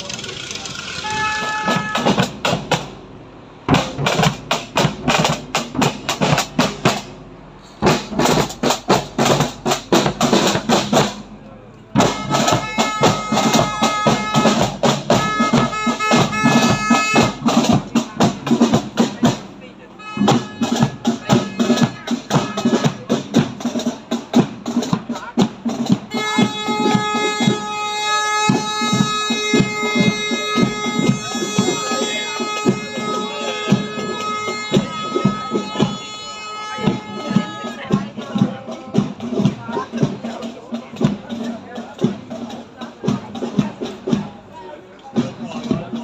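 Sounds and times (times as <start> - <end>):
marching snare drum: 0.2 - 46.0
bass drum beating: 1.0 - 44.5
high held notes: 26.1 - 38.4.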